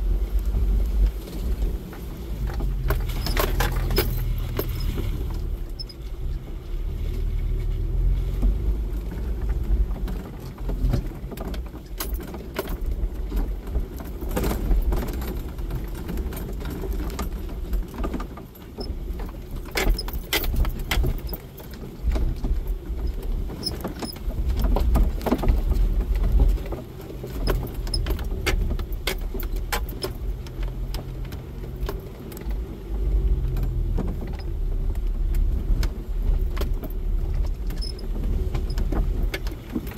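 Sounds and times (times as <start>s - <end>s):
low engine rumble: 0.0s - 39.9s
vehicle rattling and knocking: 0.0s - 39.9s.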